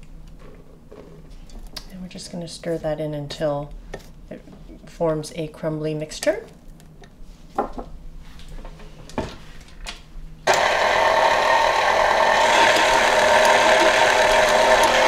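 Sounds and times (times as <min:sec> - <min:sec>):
stand mixer motor running: 0:10.5 - 0:15.0.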